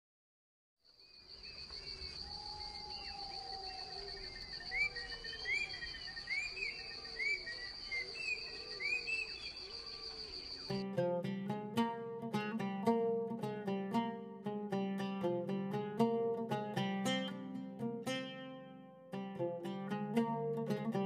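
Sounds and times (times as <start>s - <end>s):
lower animal calls: 2.2s - 10.8s.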